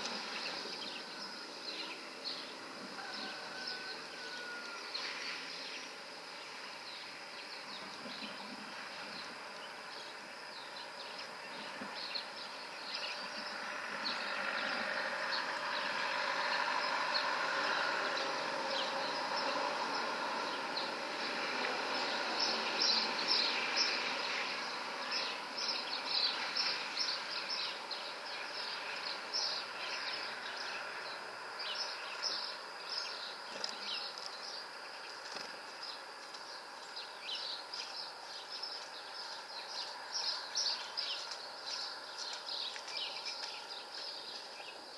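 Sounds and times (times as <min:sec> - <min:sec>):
small birds chirping: 0:00.0 - 0:44.9.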